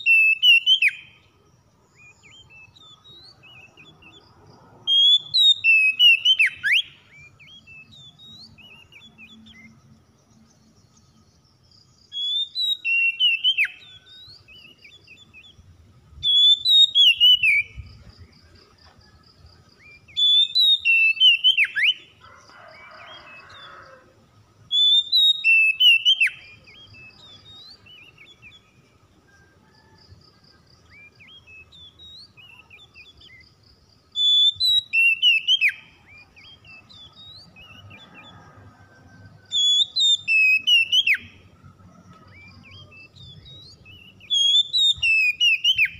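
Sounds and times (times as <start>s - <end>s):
bird whistling song: 0.0s - 1.3s, 1.9s - 4.2s, 4.9s - 9.9s, 12.1s - 18.2s, 19.8s - 22.1s, 24.7s - 30.0s, 30.9s - 33.5s, 34.1s - 38.4s, 39.4s - 41.5s, 42.3s - 45.9s
faint high chirps: 24.7s - 45.9s.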